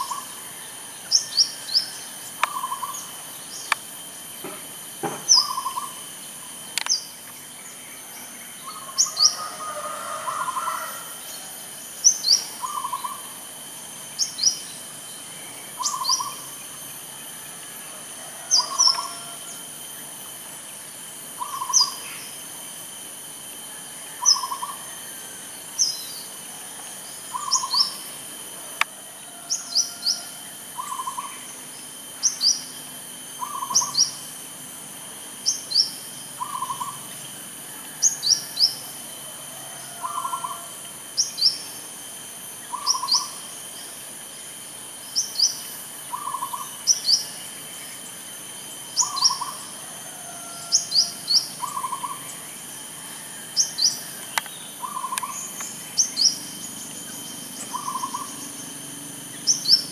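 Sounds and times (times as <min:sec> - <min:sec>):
dove cooing: 0:39.5 - 0:40.8, 0:53.0 - 0:55.5, 0:57.6 - 0:58.4.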